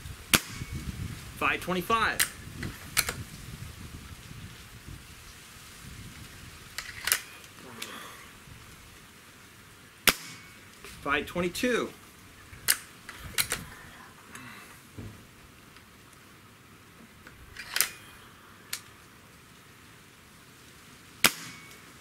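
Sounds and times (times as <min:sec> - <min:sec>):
air rifle shot: 0:00.3 - 0:00.7, 0:10.0 - 0:10.6, 0:21.2 - 0:21.8
metallic clicks of air rifle: 0:02.1 - 0:03.2, 0:06.8 - 0:07.9, 0:12.6 - 0:13.7, 0:17.2 - 0:18.0.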